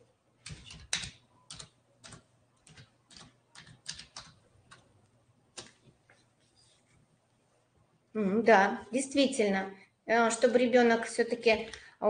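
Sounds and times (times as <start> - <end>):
keyboard typing clicks: 0.4 - 4.9.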